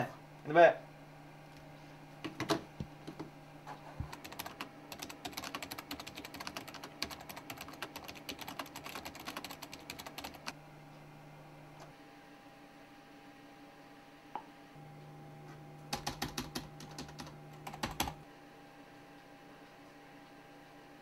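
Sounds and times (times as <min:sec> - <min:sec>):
keyboard typing: 0:02.2 - 0:03.3, 0:04.0 - 0:10.6, 0:15.9 - 0:18.2.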